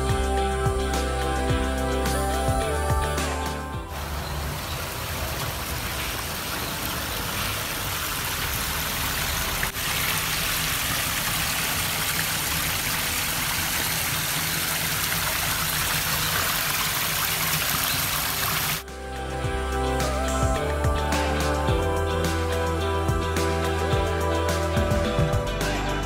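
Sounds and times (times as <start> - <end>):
flowing water: 2.1 - 18.9.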